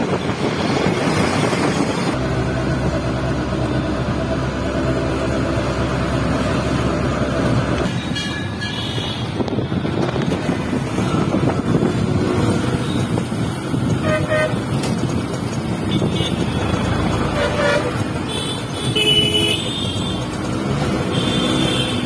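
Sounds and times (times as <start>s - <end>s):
auto-rickshaw engine running: 0.0s - 22.0s
vehicle horns tooting: 13.9s - 14.8s, 15.8s - 20.3s, 21.0s - 22.0s.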